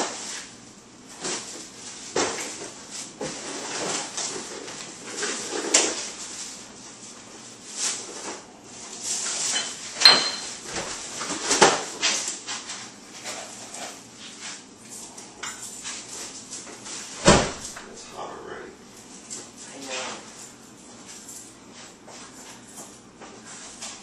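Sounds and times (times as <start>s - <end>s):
sharp knocks and clinks: 9.6s - 10.6s.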